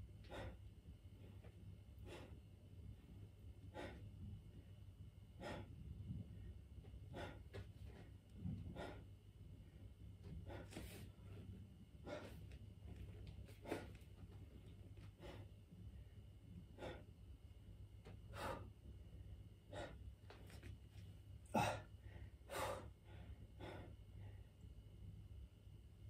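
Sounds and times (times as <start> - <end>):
man breathing hard: 0.2 - 0.6, 2.0 - 2.4, 3.7 - 4.1, 5.4 - 5.8, 7.1 - 7.6, 8.6 - 9.1, 10.4 - 11.1, 12.0 - 12.5, 15.1 - 15.5, 16.7 - 17.2, 18.3 - 18.7, 19.7 - 20.0, 21.5 - 24.5.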